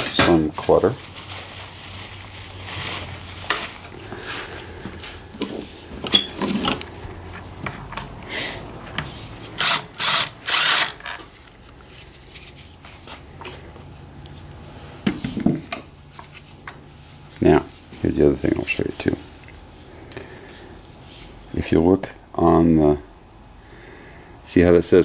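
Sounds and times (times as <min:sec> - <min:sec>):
sockets and bolts clinking: 0:05.4 - 0:06.9
power driver spinning bolts: 0:09.5 - 0:11.3.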